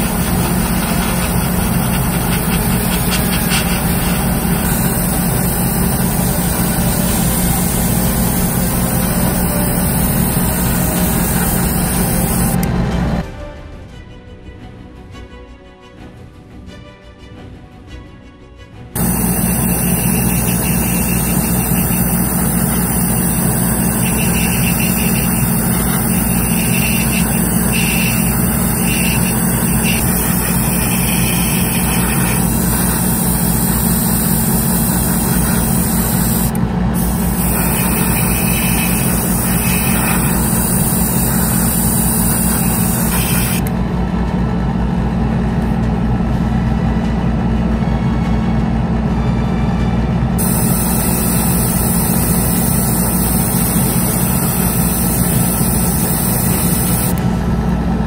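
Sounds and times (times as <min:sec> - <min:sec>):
airbrush spraying hiss: 0:00.0 - 0:12.6, 0:19.0 - 0:43.7, 0:50.4 - 0:57.2
compressor motor humming: 0:00.0 - 0:13.2, 0:19.0 - 0:45.8, 0:50.4 - 0:57.8.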